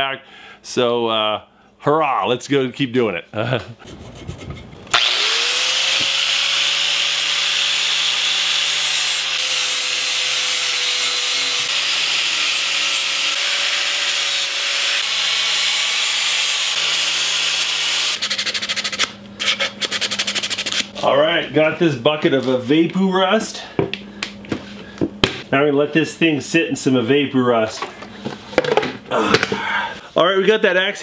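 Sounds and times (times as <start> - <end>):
hand tool rubbing wood: 3.8 - 8.2, 18.1 - 21.1
angle grinder grinding wood: 4.9 - 21.1.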